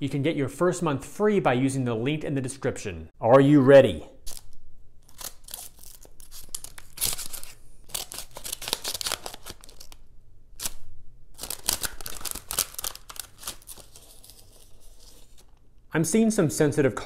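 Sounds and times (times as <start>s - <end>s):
scissors snipping paper: 4.2s - 10.0s, 11.4s - 15.5s
paper crinkling: 4.2s - 10.8s, 11.4s - 15.7s.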